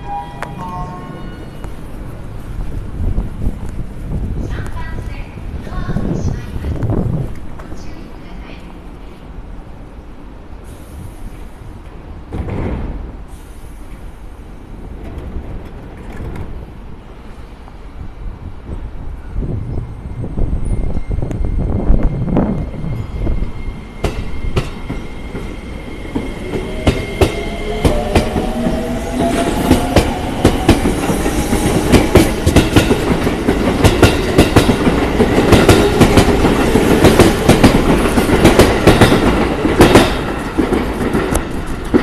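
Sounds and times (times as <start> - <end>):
train wheels clacking on rail joints: 26.1 - 42.0.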